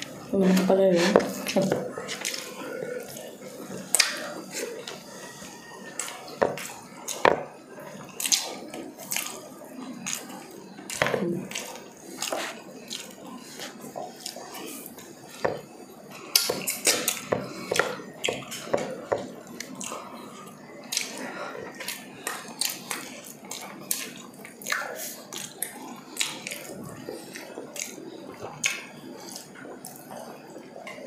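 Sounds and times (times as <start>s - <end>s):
chewing and lip smacking: 16.3s - 31.0s.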